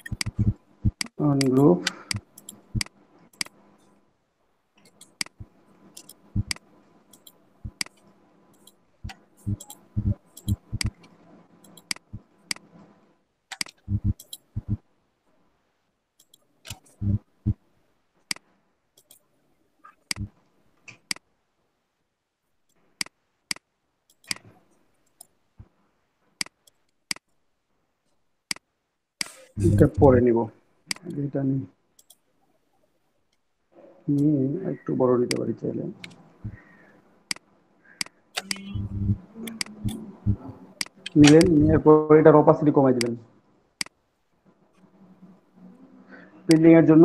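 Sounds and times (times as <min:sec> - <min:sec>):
mouse and keyboard clicks: 0:00.0 - 0:03.9, 0:04.8 - 0:12.7, 0:13.5 - 0:14.8, 0:16.2 - 0:17.2, 0:19.9 - 0:21.3, 0:23.0 - 0:25.3, 0:28.5 - 0:30.1, 0:32.0 - 0:32.2, 0:37.3 - 0:41.8
faint hum: 0:00.0 - 0:26.6, 0:27.4 - 0:47.0.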